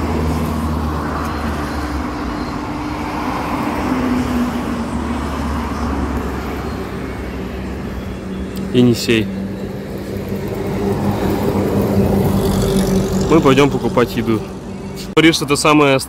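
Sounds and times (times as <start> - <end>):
vehicle engine running: 0.0 - 15.2.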